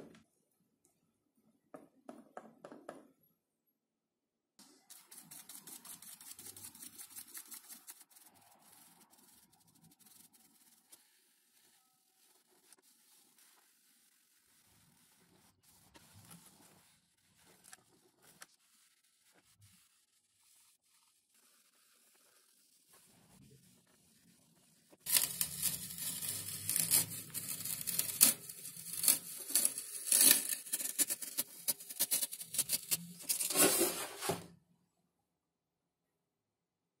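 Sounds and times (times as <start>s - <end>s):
sponge dabbing paint: 4.7s - 33.8s.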